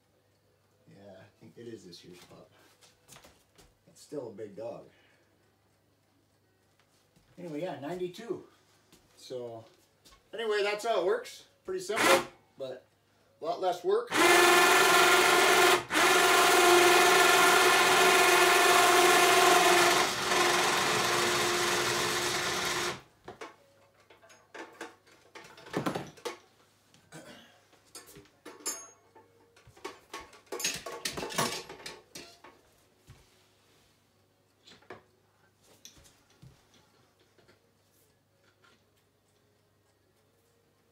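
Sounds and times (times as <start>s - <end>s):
winch motor whining: 14.1s - 23.0s.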